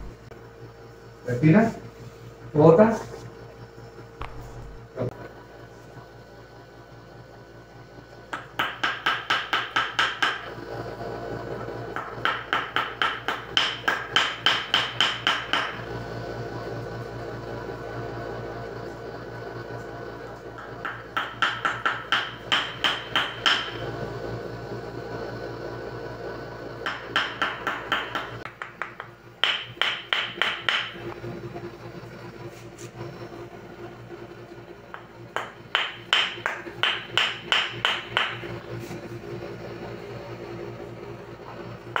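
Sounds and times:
wooden mallet striking wooden rod: 0:08.4 - 0:10.4, 0:12.0 - 0:15.8, 0:20.6 - 0:23.8, 0:26.8 - 0:31.0, 0:34.9 - 0:38.4.

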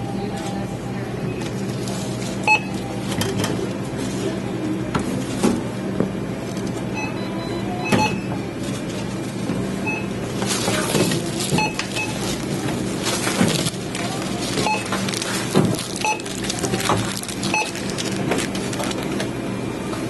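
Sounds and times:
steady hum: 0:00.0 - 0:20.0
groceries knocking on conveyor belt: 0:10.3 - 0:19.3.

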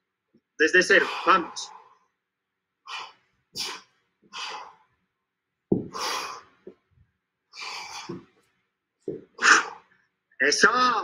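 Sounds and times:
sharp exhalations: 0:00.9 - 0:02.1, 0:02.9 - 0:04.9, 0:05.8 - 0:06.7, 0:07.6 - 0:08.3, 0:09.2 - 0:09.9.

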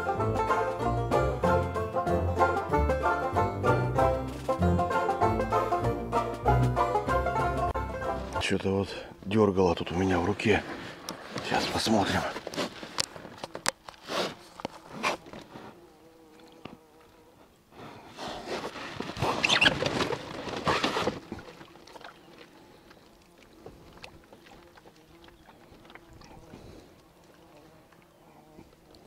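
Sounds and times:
water splashing and dripping: 0:21.2 - 0:28.0.

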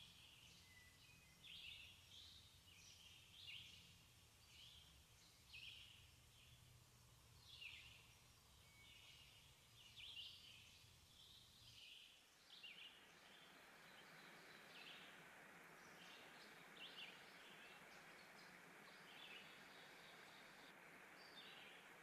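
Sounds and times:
faint bird chirps: 0:00.0 - 0:22.0
low hum: 0:12.3 - 0:22.0.

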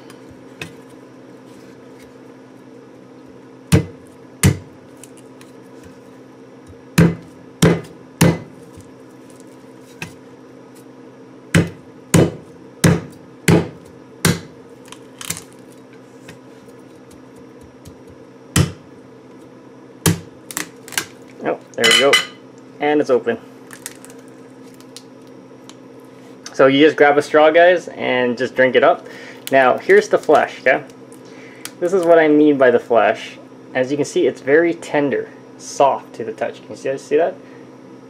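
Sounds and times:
knife chopping coconut shell: 0:03.7 - 0:04.7, 0:06.7 - 0:08.8, 0:11.5 - 0:14.6, 0:17.0 - 0:18.8, 0:20.0 - 0:21.1.

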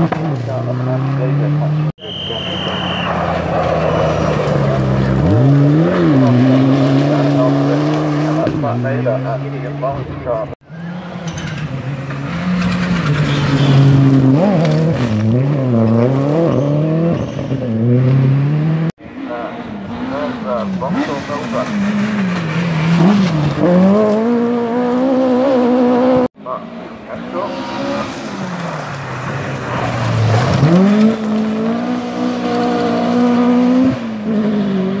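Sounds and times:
rally car engine at high revs: 0:00.0 - 0:02.0, 0:03.1 - 0:35.0.

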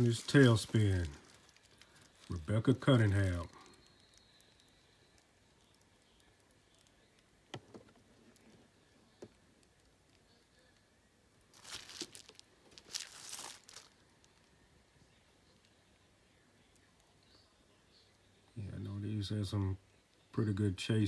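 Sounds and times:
plastic crinkling and rustling: 0:00.0 - 0:05.8, 0:11.5 - 0:14.6.

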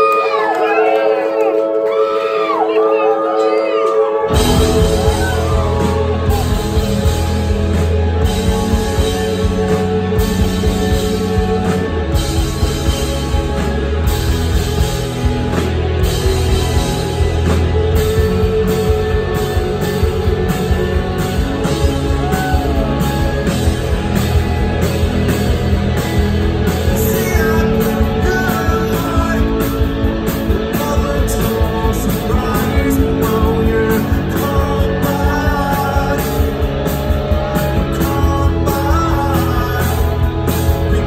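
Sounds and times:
live rock band playing: 0:00.0 - 0:41.0
man singing: 0:26.6 - 0:41.0.

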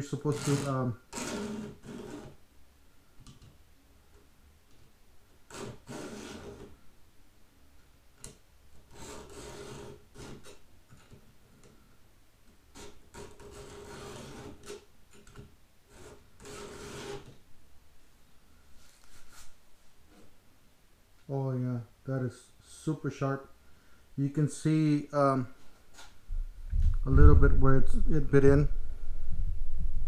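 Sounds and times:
files rasping on saw chain: 0:00.2 - 0:02.4, 0:05.5 - 0:06.7, 0:08.9 - 0:10.6, 0:12.8 - 0:14.8, 0:15.9 - 0:17.3.

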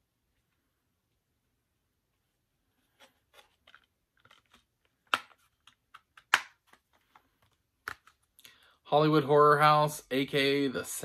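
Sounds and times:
plastic case snapping: 0:04.2 - 0:06.8.

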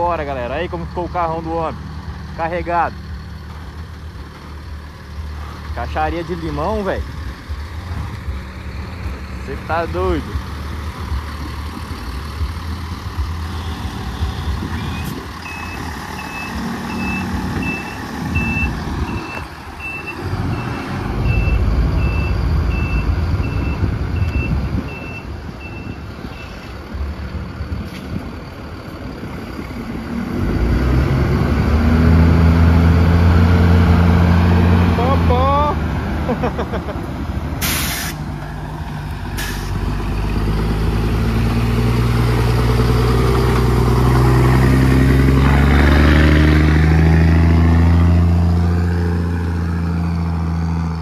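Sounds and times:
diesel truck engine running: 0:00.0 - 0:51.0
reversing alarm beeping: 0:13.5 - 0:26.6.

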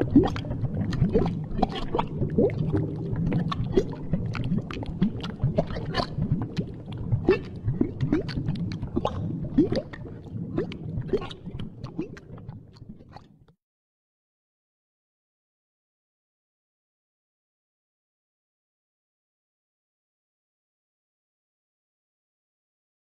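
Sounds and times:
stomach gurgling: 0:00.0 - 0:13.6.

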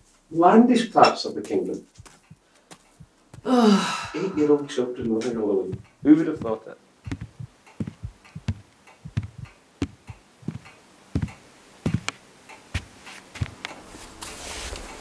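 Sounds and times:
heavy footsteps on hard floor: 0:02.0 - 0:12.2, 0:12.8 - 0:13.6.

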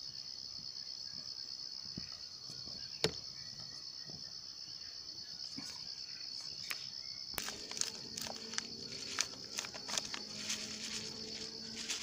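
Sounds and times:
insects chirring: 0:00.0 - 0:12.0
plastic sachet crinkling: 0:07.4 - 0:12.0.

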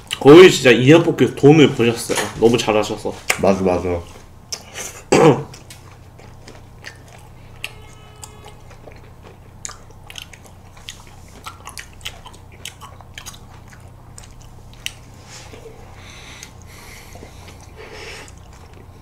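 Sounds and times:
chewing with wet mouth clicks: 0:00.0 - 0:00.2, 0:04.5 - 0:04.8, 0:05.5 - 0:15.0, 0:16.4 - 0:19.0.

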